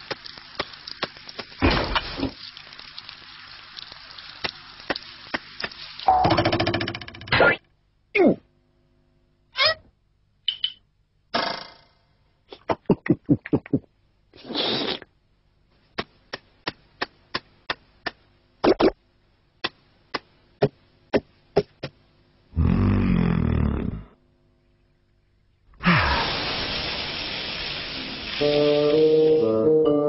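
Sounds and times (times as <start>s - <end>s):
cartoon pops and clicks: 16.3s - 19.0s.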